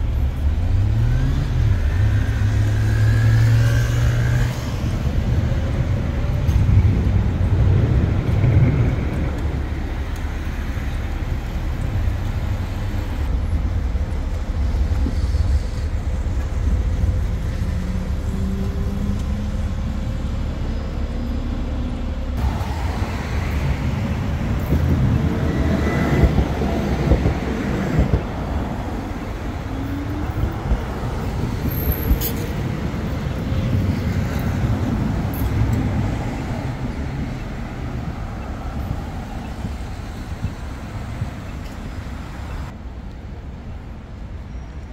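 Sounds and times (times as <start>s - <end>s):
cars and buses passing: 0.0s - 44.9s
vehicles pulling away: 16.1s - 42.7s.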